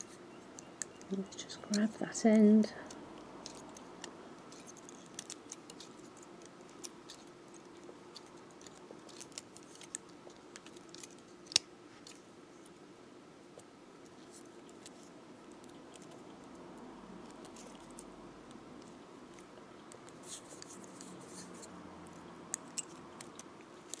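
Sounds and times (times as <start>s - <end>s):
pliers clicking and scraping wire: 2.8s - 12.2s, 18.8s - 24.0s.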